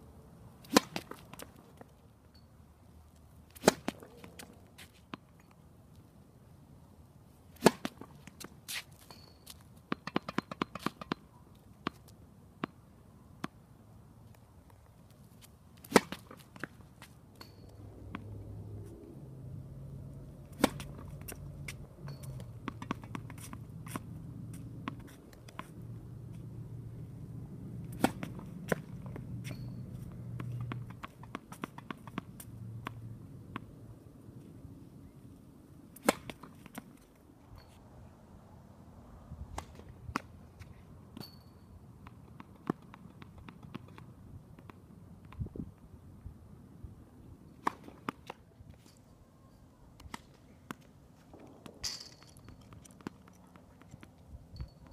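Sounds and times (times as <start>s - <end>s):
tennis racket hitting ball: 0.6s - 1.5s, 3.5s - 4.3s, 7.6s - 8.1s, 15.8s - 16.8s, 20.4s - 25.7s, 27.9s - 33.7s
low steady rumble: 17.4s - 31.1s.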